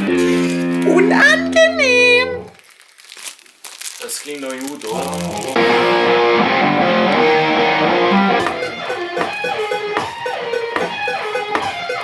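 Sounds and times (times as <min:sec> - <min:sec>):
electric guitar chords: 0:00.0 - 0:02.5, 0:05.2 - 0:12.0.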